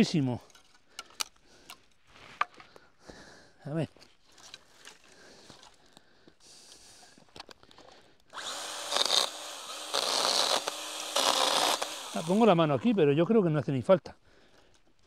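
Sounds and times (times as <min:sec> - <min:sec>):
electric chainsaw cutting branch: 0:08.3 - 0:12.9.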